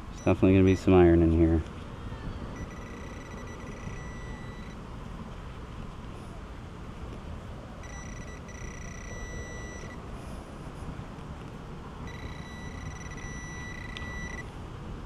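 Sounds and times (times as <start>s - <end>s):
high-pitched buzzing tone: 2.5s - 4.8s, 7.8s - 10.0s, 12.0s - 14.5s.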